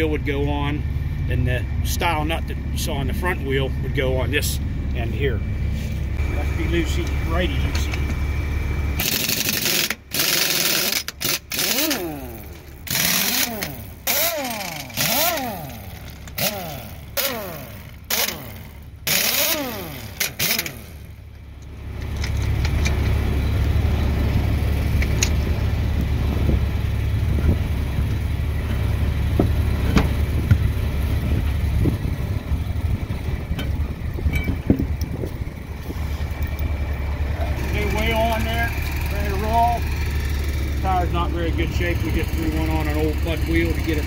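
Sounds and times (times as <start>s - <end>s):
engine running: 0.0s - 44.0s
pneumatic impact wrench bursts: 9.0s - 21.2s.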